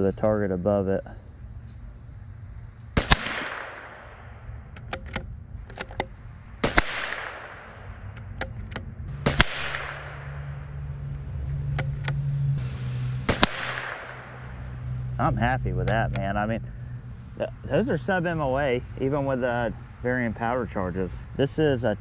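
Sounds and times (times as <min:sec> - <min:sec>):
rifle shots with echo: 0:03.0 - 0:04.4, 0:06.6 - 0:08.1, 0:09.2 - 0:10.6, 0:13.3 - 0:14.6
metallic rifle bolt clicks: 0:04.7 - 0:06.2, 0:08.1 - 0:08.9, 0:11.7 - 0:12.2.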